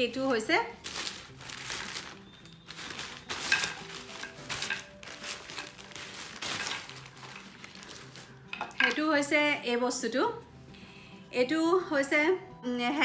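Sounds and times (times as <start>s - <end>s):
plastic packaging rustling: 0.0s - 9.0s.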